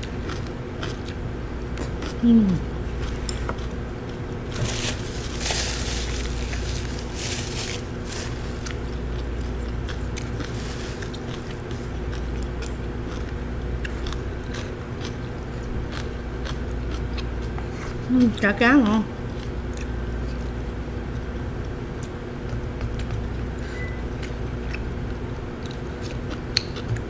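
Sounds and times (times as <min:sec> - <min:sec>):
steady low hum: 0:00.0 - 0:27.0
chewing: 0:00.1 - 0:01.2, 0:06.1 - 0:18.0, 0:24.2 - 0:27.0
rustling: 0:04.5 - 0:08.8.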